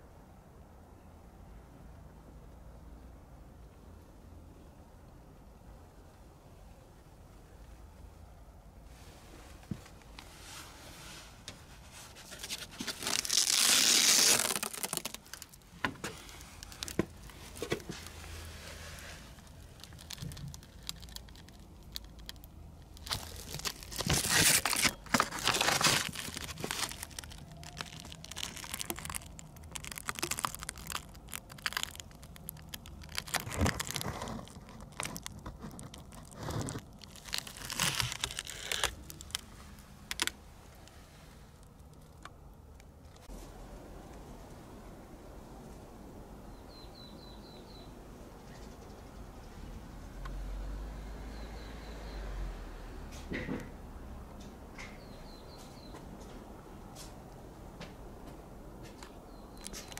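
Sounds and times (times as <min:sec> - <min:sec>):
fabric rustling and ripping: 0:12.0 - 0:40.3.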